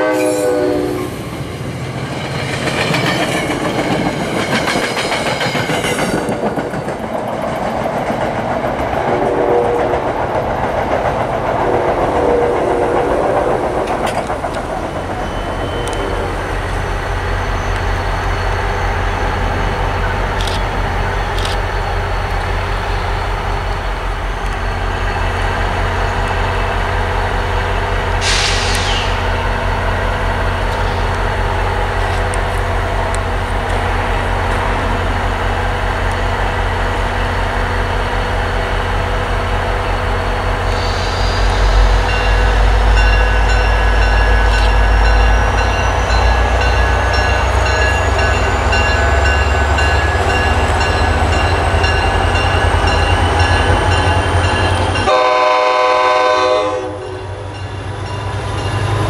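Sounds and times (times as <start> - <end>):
diesel locomotive engine drone: 0.0 - 59.0
train coaches rattling on rails: 0.0 - 59.0
brief hiss: 28.2 - 29.3.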